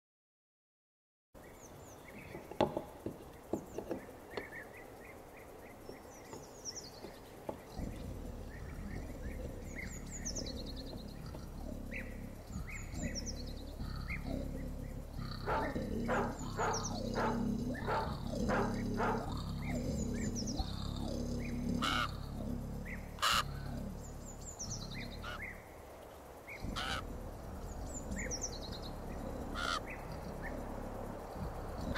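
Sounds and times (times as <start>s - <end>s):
loud repeated bird calls: 1.4s - 31.9s
low steady hum: 1.7s - 31.9s
high bird chirps: 3.5s - 25.6s.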